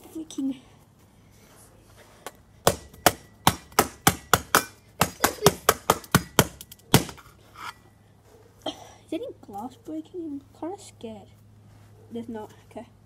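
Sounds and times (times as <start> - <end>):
hammer striking phone: 2.6 - 7.2.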